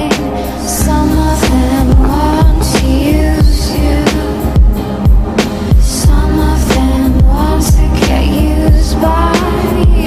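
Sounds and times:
rhythm and blues music: 0.0 - 10.0
low kick drum beat: 1.6 - 3.7, 7.2 - 9.0.

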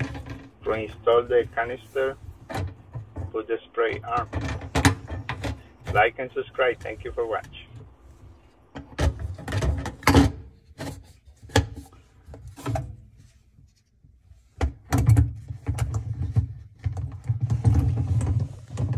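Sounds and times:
plastic parts clicking and clattering: 0.0 - 6.0, 8.6 - 13.1.

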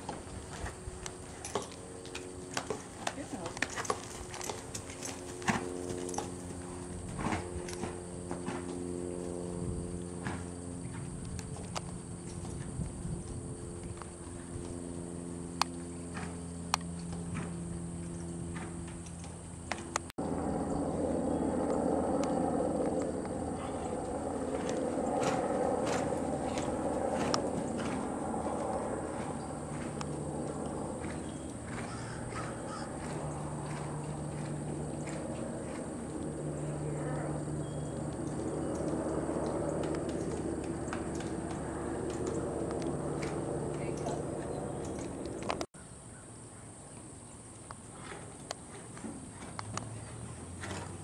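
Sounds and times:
horse hooves trotting on sand: 0.0 - 45.7, 46.9 - 51.0
steady low hum: 0.0 - 51.0
bird calling: 29.2 - 33.9.

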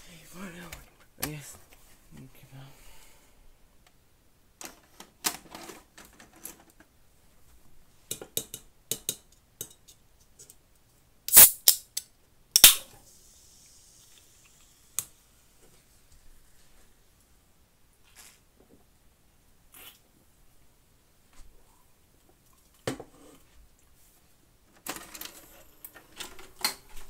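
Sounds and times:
soda can opening crack and fizz: 11.3 - 15.2.

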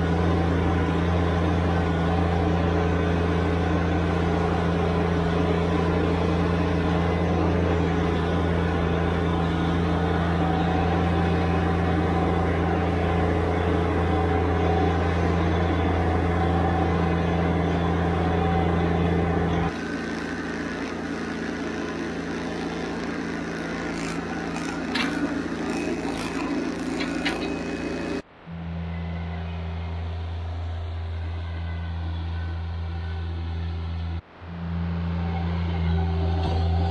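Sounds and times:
tractor diesel engine running: 0.0 - 36.9
sharp clicks and knocks: 24.0 - 27.6.

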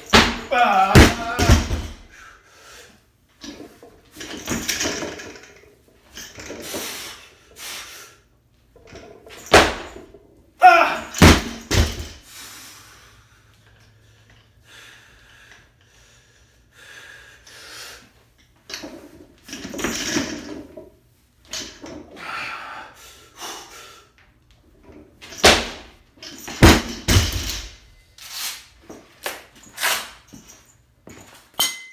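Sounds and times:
barbell slamming onto floor: 0.1 - 2.0, 9.5 - 10.0, 11.2 - 12.2, 26.5 - 27.8.

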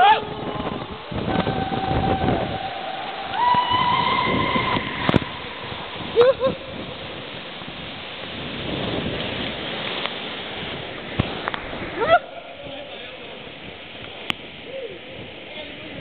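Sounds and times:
water rushing in slide tube: 0.0 - 16.0
person yelling: 12.0 - 12.5.

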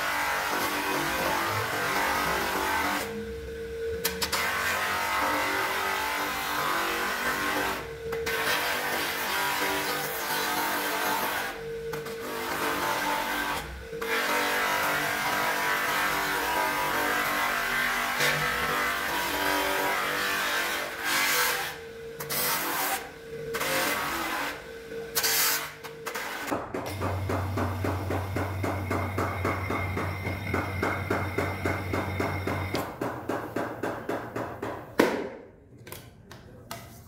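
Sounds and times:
steady low hum: 21.6 - 33.4.

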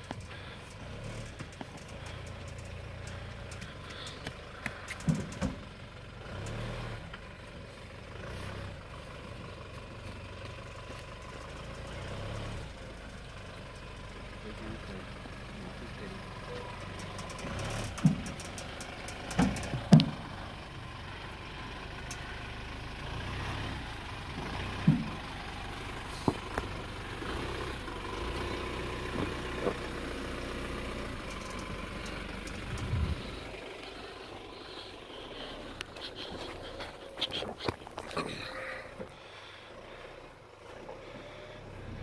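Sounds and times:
truck engine running low: 0.0 - 42.0
sharp knocks and thumps: 4.9 - 5.6, 17.4 - 18.5, 19.3 - 20.3, 24.8 - 25.2.

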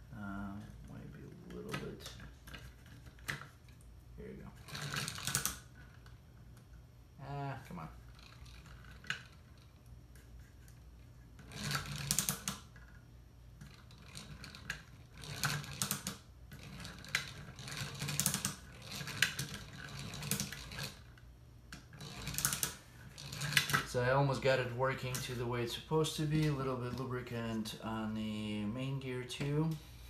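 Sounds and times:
wooden gears clicking and rattling: 4.5 - 6.6, 7.6 - 27.6.

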